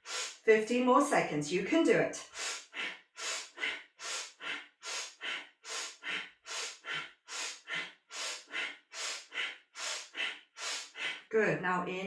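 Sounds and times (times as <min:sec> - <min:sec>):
woman breathing rhythmically: 0:00.0 - 0:00.5, 0:02.2 - 0:11.3.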